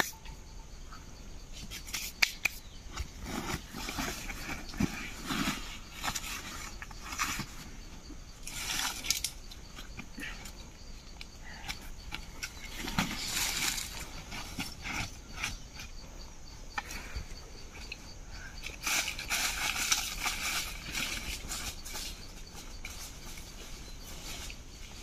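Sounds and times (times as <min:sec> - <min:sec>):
sticks snapping: 0:01.9 - 0:02.6.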